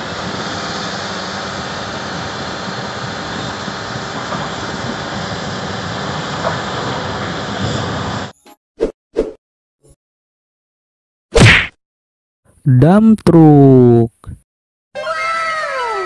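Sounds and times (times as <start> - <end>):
diesel machinery running: 0.0 - 8.3.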